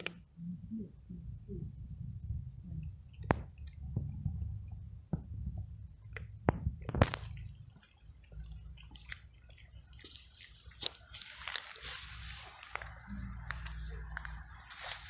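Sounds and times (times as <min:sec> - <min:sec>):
cat crunching dry kibble: 0:06.2 - 0:15.0.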